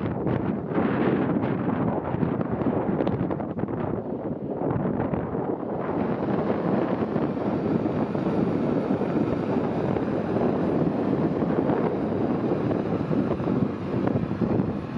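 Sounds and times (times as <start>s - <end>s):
wind buffeting microphone: 0.0s - 14.9s
diesel engine running: 5.7s - 14.9s.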